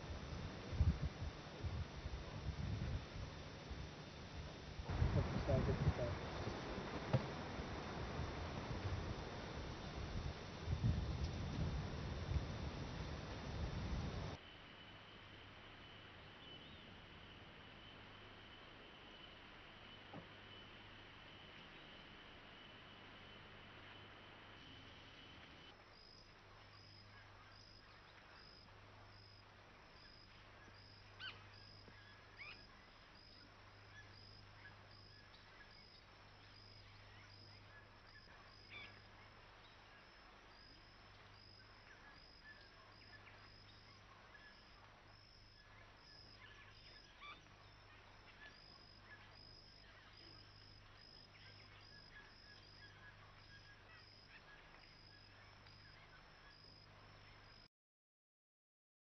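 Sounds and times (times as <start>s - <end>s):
low steady hum: 0.0s - 57.7s.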